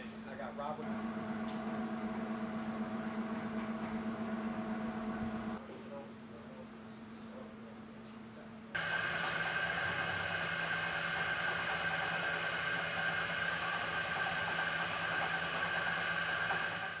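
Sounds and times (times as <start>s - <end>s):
milling machine drilling steel: 8.8s - 17.0s.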